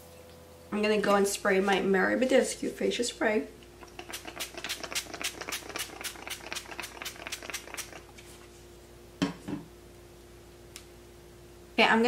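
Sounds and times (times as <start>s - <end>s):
spray mister hissing: 4.0s - 8.0s.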